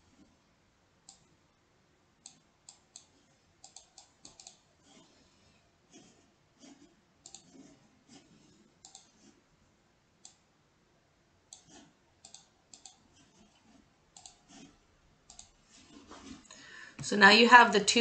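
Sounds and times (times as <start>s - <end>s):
faint mouse clicks: 1.0s - 1.3s, 2.2s - 4.6s, 7.2s - 7.5s, 8.8s - 9.2s, 10.2s - 10.4s, 11.5s - 13.0s, 14.1s - 14.4s, 15.3s - 15.6s.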